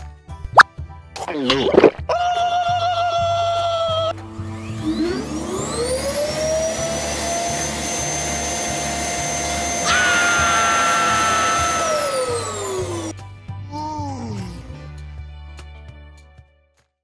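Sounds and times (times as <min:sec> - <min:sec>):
motor-like whirring: 0:04.5 - 0:13.1.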